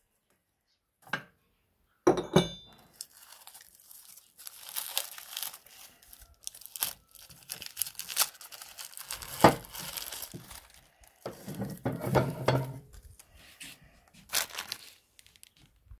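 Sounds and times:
plastic packets crinkling and tearing: 2.8 - 12.0, 14.1 - 16.0.

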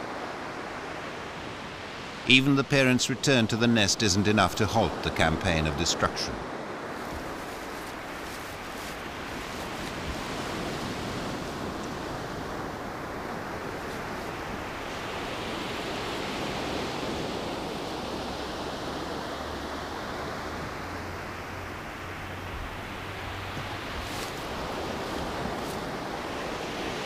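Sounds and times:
steady rushing hiss: 6.9 - 10.9.

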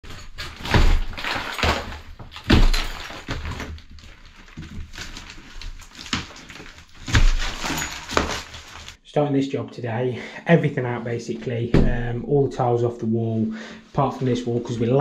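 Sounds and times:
debris crumbling and rustling: 0.0 - 9.0
plasterboard breaking with thuds: 0.1 - 9.0.

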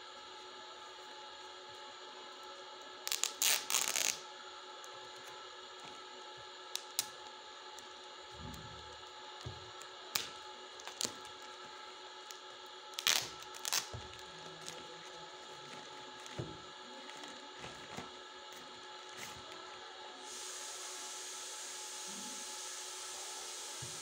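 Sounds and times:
plastic wrapper crinkling: 3.1 - 4.2, 10.1 - 11.8, 13.0 - 19.3.

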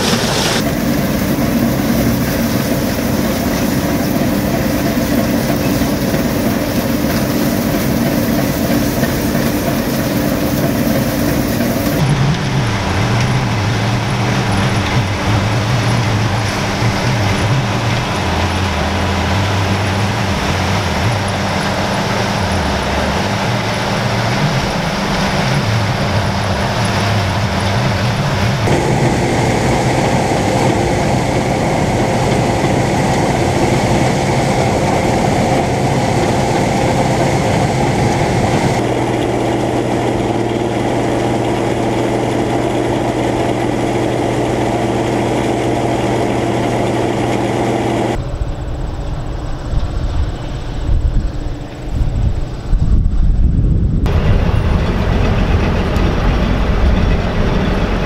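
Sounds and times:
combine engine drone: 0.0 - 58.0
threshing machinery noise: 0.0 - 58.0.

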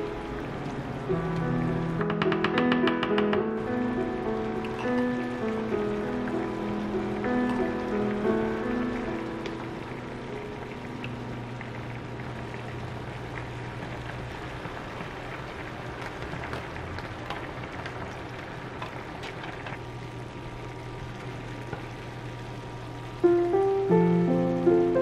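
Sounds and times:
pot boiling: 0.0 - 25.0
wooden spoon taps: 2.0 - 3.5.

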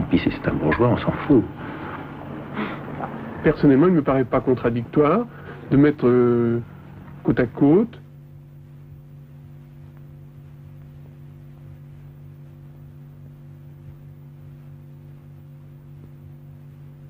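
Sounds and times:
electrical hum: 0.0 - 17.0
faint hiss and rumble: 0.0 - 17.0.

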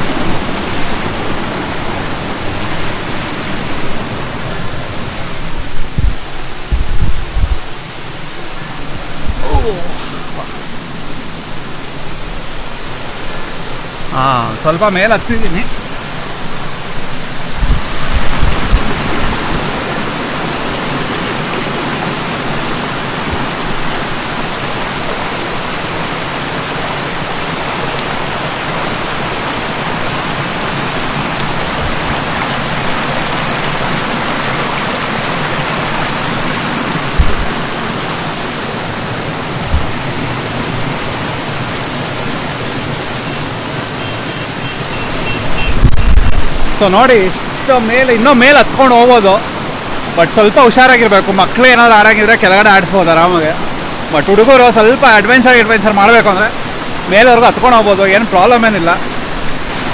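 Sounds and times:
waterfall pouring: 0.0 - 59.9
low thumps: 2.6 - 7.8, 9.1 - 9.6, 16.5 - 19.8, 37.0 - 38.2, 39.4 - 40.8.

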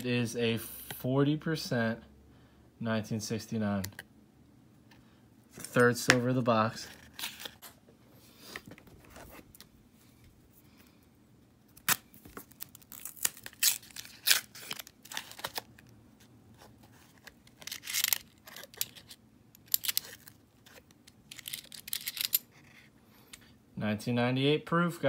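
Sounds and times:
paper wrapper tearing and crinkling: 6.9 - 7.6, 11.7 - 15.9, 17.0 - 19.1.

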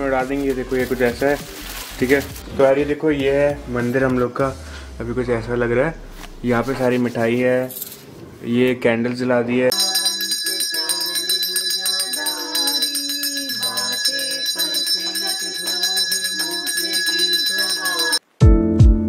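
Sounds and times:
hand bell rung rapidly: 9.7 - 18.2
voices singing: 9.7 - 18.2.

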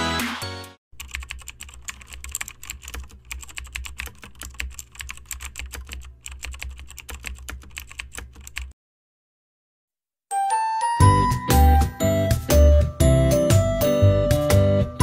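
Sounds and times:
keyboard typing clicks: 1.0 - 8.8.

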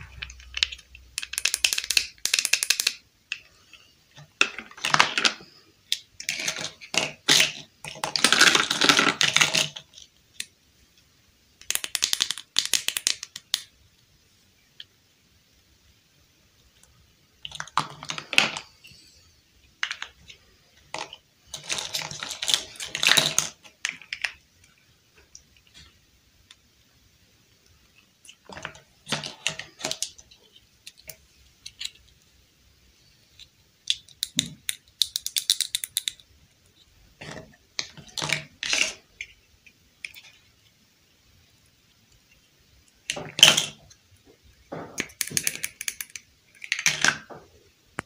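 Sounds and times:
plastic pieces clicking: 0.1 - 3.5, 4.2 - 10.5, 11.6 - 13.7, 19.8 - 26.6, 28.2 - 32.2, 33.3 - 36.3, 44.9 - 47.3.

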